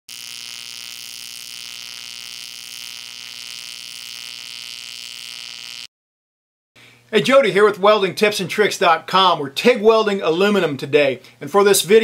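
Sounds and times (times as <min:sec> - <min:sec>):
welding arc buzzing hum: 0:00.1 - 0:05.9.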